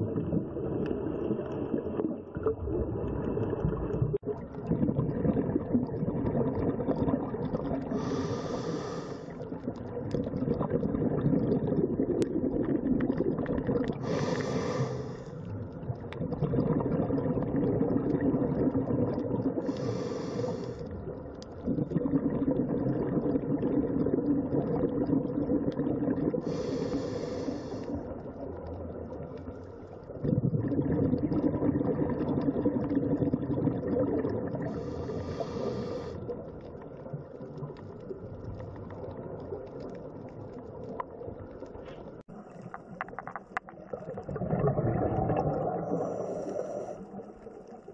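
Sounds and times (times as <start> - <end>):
exhaled bubbles rumbling: 0.0 - 47.9
regulator inhalation hiss: 7.9 - 9.4, 14.0 - 15.4, 19.6 - 20.9, 26.4 - 28.0, 34.7 - 36.2.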